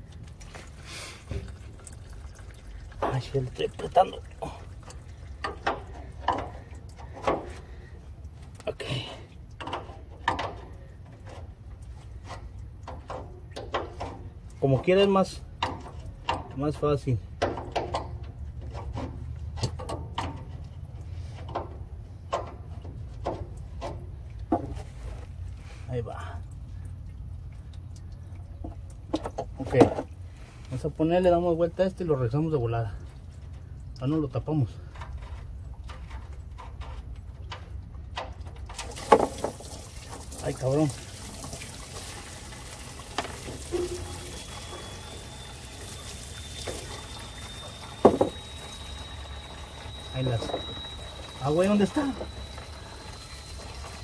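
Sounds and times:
low steady rumble: 0.0 - 54.0
diesel splashing into tub: 38.4 - 54.0
faint thin whistle: 43.7 - 54.0.

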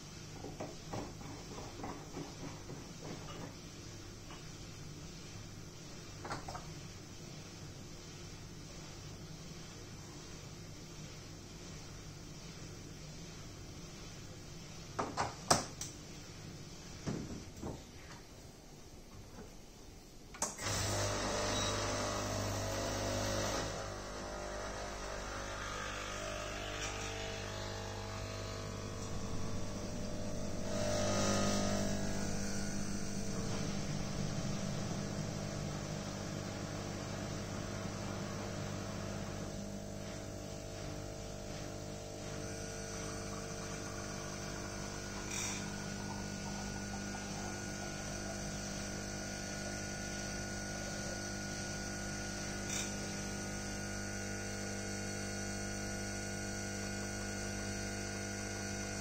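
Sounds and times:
espresso machine pump humming: 20.6 - 59.0.

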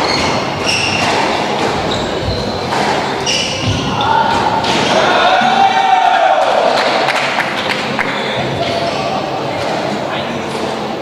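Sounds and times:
shoes squeaking on floor: 0.0 - 5.2
squash ball struck by rackets: 0.2 - 1.9, 2.6 - 4.9.

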